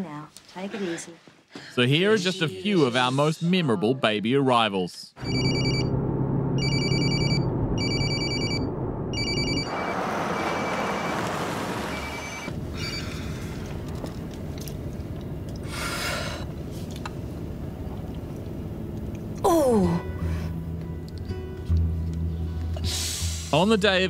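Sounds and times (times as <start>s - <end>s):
telephone ringing: 5.2s - 5.9s, 6.6s - 11.3s
car road noise: 5.2s - 19.6s.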